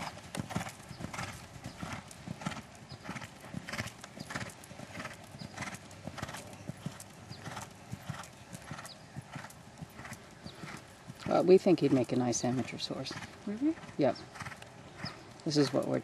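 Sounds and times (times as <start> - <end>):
hoofbeats on sand: 0.0 - 16.0.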